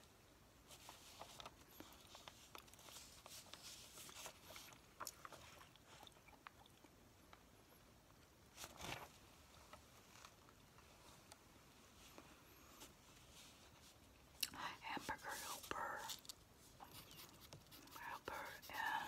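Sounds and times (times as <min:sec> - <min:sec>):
paper rustling: 0:00.7 - 0:04.8, 0:08.6 - 0:09.2
pencil writing on notepad: 0:16.8 - 0:19.0.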